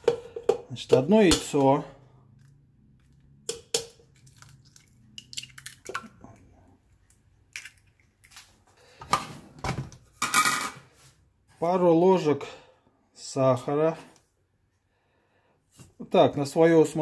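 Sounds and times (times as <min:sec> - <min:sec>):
egg cracked with sharp taps: 0:07.1 - 0:08.4.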